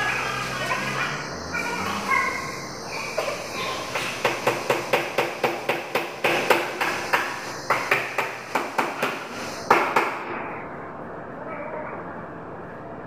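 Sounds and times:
hammer striking: 3.2s - 10.4s.

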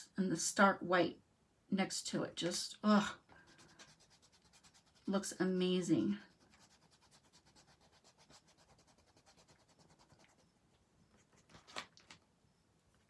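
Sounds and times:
fingertips rubbing paper: 3.3s - 5.4s, 6.2s - 11.8s
paper rustle: 11.1s - 12.2s.

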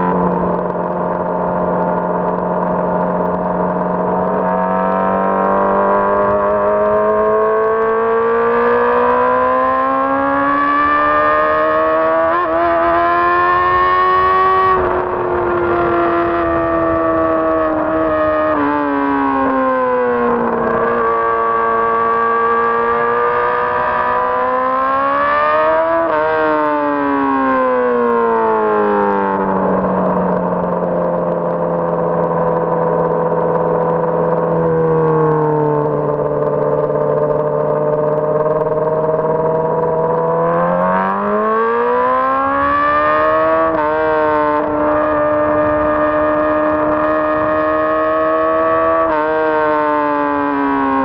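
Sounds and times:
motorcycle engine at high revs: 0.0s - 51.0s.

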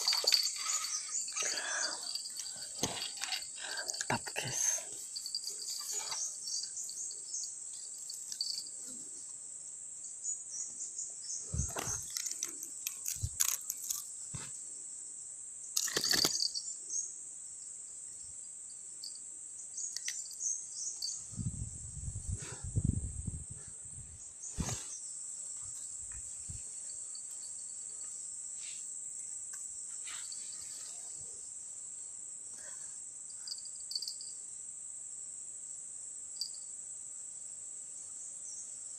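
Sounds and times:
handling knocks and rustles: 0.0s - 4.1s, 11.5s - 14.6s
high-pitched insect drone: 0.0s - 9.0s.

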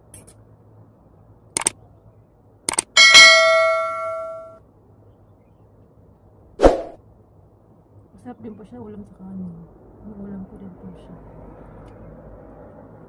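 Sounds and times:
short clicks: 1.6s - 1.8s, 2.7s - 2.9s
bell ding: 3.0s - 4.6s.

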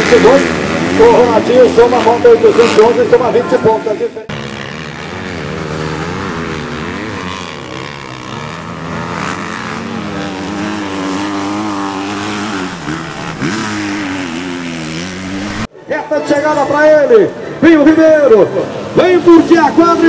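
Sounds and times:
motocross bike engine revving: 0.0s - 15.7s.

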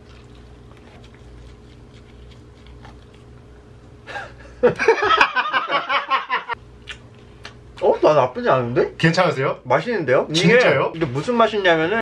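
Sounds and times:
faint chewing: 0.0s - 3.7s, 6.8s - 7.8s
man laughing loudly: 4.1s - 6.6s.

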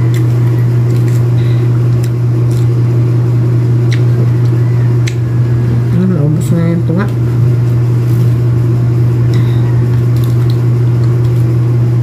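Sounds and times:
loud low hum: 0.0s - 12.0s
fruit peel clicks: 3.8s - 5.3s.

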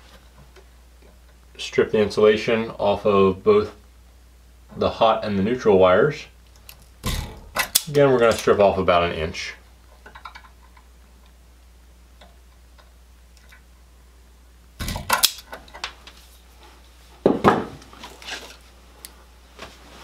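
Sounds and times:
wire strippers snapping: 6.5s - 8.5s, 14.8s - 16.0s.

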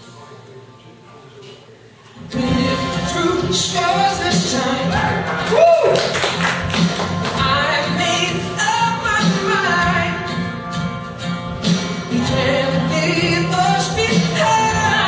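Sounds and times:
person singing a song: 2.2s - 5.6s, 7.3s - 10.3s, 12.0s - 15.0s.

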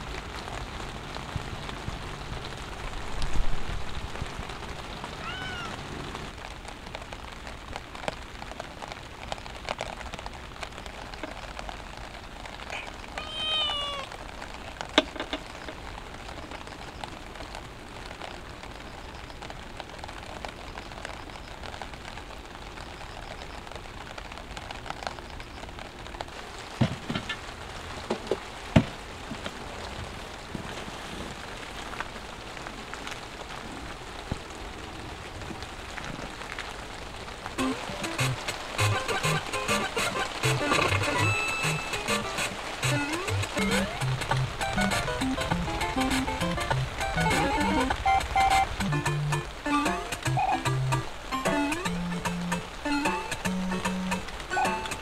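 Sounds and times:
steady rain falling: 0.0s - 55.0s
cat meowing: 5.2s - 5.8s, 12.7s - 14.2s.

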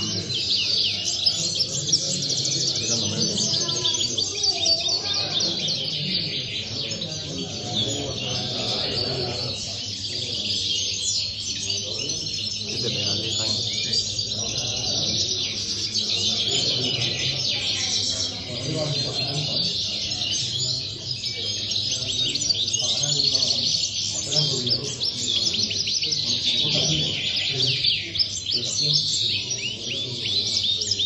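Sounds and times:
finches twittering and trilling: 0.0s - 31.0s.

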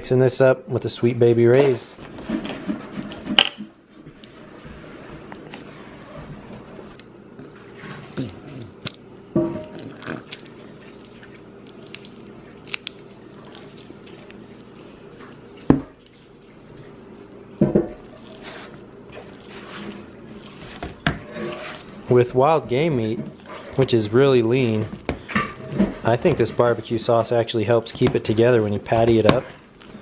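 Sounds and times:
faint steady hum: 0.0s - 30.0s
hand squishing sauce into meat: 7.4s - 9.0s, 9.6s - 30.0s
sauce squelching and dripping: 9.6s - 30.0s.

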